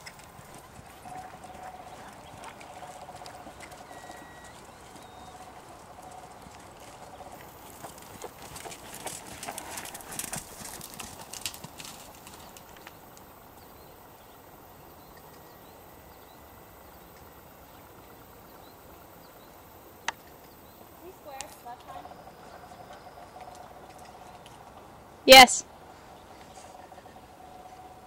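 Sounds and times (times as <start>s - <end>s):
horse hoofbeats on sand: 0.0s - 13.0s.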